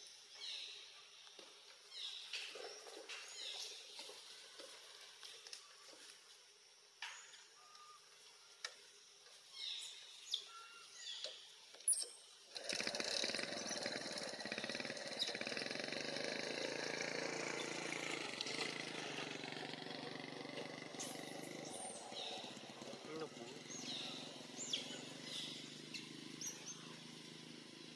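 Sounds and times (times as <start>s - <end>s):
motor engine running: 12.5s - 27.9s.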